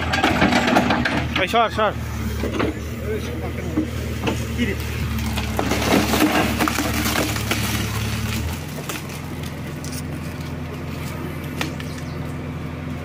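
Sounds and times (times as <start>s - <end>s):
diesel engine under load: 0.0s - 13.0s
wood cracking: 3.7s - 12.1s.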